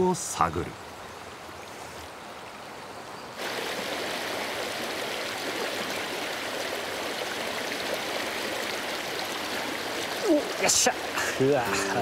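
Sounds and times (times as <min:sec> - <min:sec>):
river water rushing: 0:03.4 - 0:12.0.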